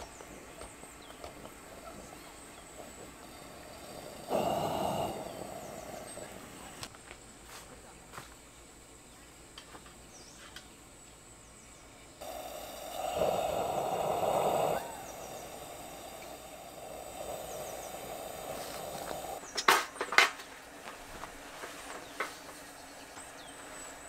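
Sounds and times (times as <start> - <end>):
gas lantern hissing: 0.0 - 7.0, 12.1 - 24.0.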